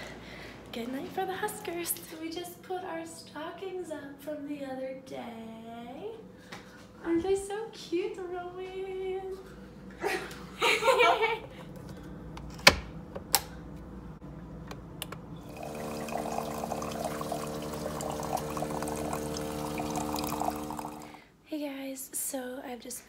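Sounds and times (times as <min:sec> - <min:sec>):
coffee maker humming: 0:15.2 - 0:21.2
liquid pouring into ceramic mug: 0:15.5 - 0:21.2.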